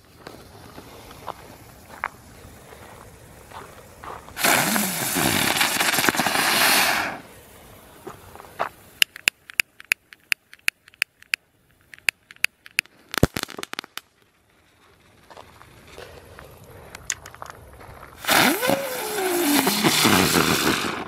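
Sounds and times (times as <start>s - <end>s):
firework pops and crackles: 0.0s - 7.3s, 8.0s - 21.0s
firework hissing: 0.0s - 9.0s, 18.1s - 21.0s.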